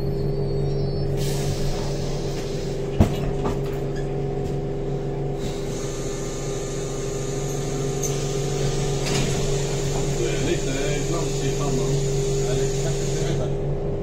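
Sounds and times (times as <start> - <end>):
transit vehicle hum and rumble: 0.0 - 14.0.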